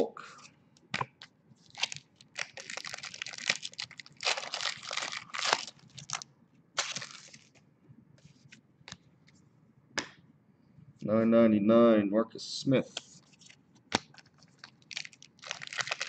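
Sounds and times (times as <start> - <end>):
foil wrapper crinkling and tearing: 1.6 - 6.2, 6.8 - 7.6, 14.1 - 16.0.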